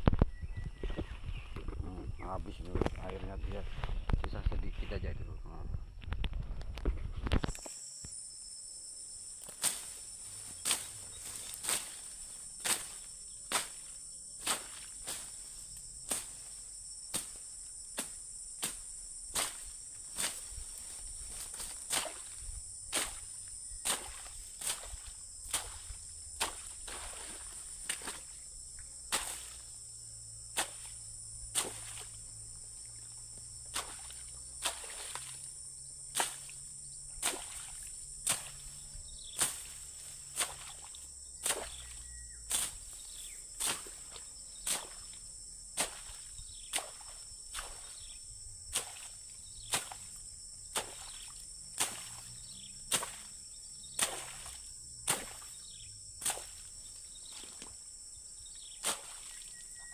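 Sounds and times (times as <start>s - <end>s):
insects droning: 0.0s - 59.9s
machete chopping reeds: 9.4s - 28.3s, 29.1s - 29.6s, 30.5s - 32.1s, 33.7s - 35.3s, 36.1s - 36.5s, 37.2s - 37.6s, 38.2s - 38.6s, 39.3s - 43.0s, 43.6s - 45.1s, 45.8s - 47.8s, 48.7s - 49.1s, 49.7s - 50.1s, 50.7s - 52.2s, 52.8s - 53.2s, 54.0s - 55.5s, 56.2s - 56.6s, 58.8s - 59.2s.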